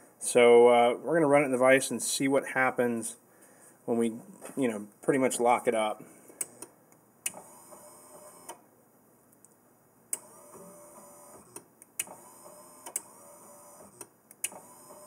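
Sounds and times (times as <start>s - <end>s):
small electric motor whirring: 7.3s - 8.6s, 10.2s - 15.0s.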